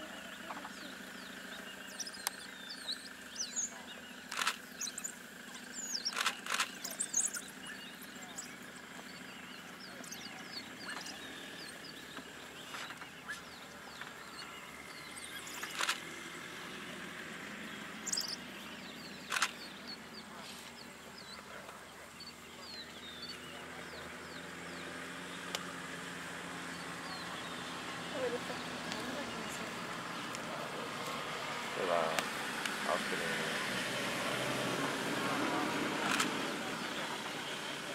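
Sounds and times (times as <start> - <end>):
dogs squeaking and chirping: 4.8 - 7.8
sharp snaps: 32.1 - 32.8.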